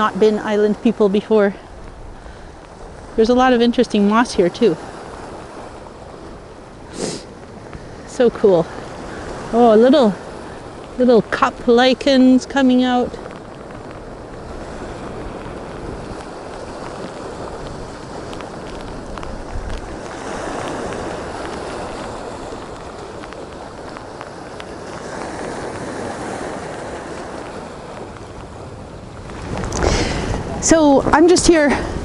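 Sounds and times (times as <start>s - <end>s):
storm wind and sea rushing: 0.0s - 32.0s
faint ticks: 1.8s - 3.0s, 10.4s - 11.0s, 13.1s - 28.6s.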